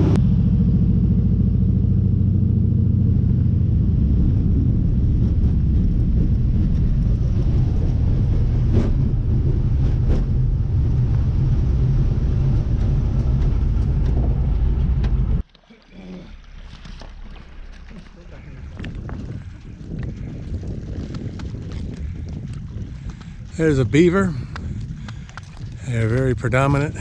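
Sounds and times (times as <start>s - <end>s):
plane engine and propeller drone: 0.0s - 15.4s.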